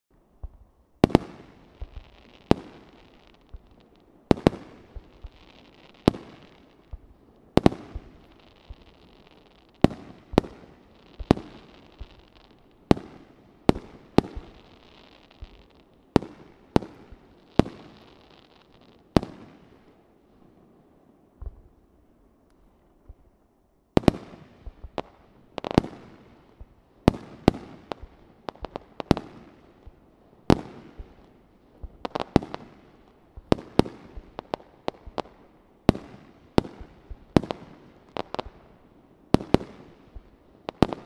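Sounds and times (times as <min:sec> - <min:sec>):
faint hiss: 0:00.2 - 0:41.0.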